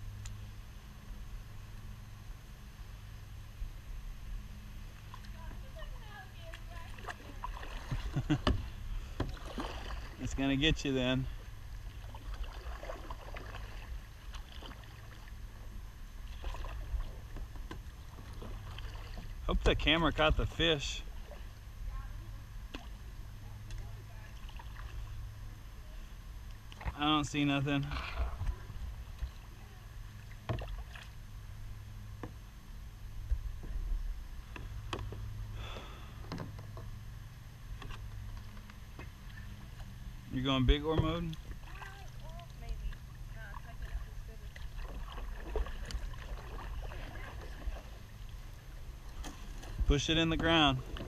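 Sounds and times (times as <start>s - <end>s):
steady low rumble: 0.0s - 51.0s
paddle splashing water: 4.8s - 32.4s, 33.2s - 51.0s
paddle knocking plastic hull: 7.0s - 9.9s.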